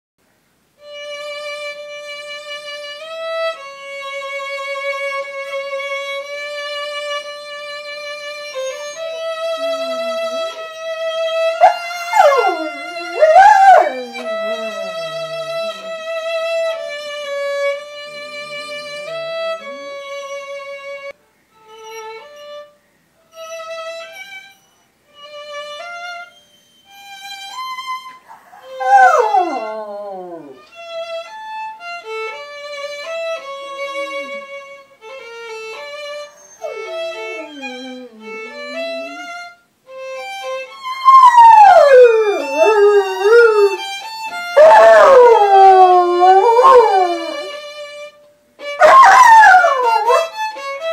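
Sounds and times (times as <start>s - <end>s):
solo violin: 0.8s - 41.3s, 41.9s - 50.9s
dog howling: 11.6s - 16.0s, 28.3s - 30.8s, 36.3s - 39.3s, 41.0s - 43.9s, 44.5s - 47.6s, 48.8s - 50.4s.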